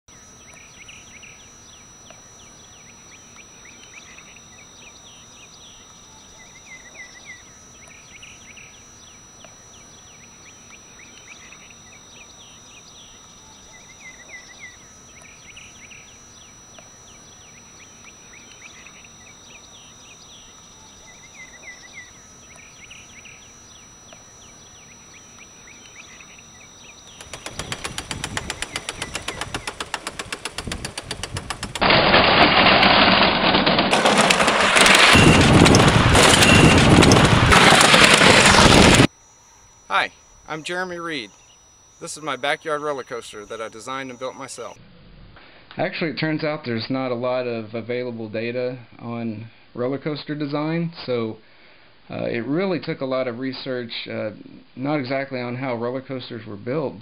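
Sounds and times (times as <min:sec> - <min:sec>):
birds singing: 0:00.1 - 0:31.8, 0:40.2 - 0:44.8
steady high-pitched hum: 0:00.1 - 0:32.8, 0:33.9 - 0:57.0
roller coaster wheels rattling: 0:27.1 - 0:32.7, 0:33.7 - 0:39.1.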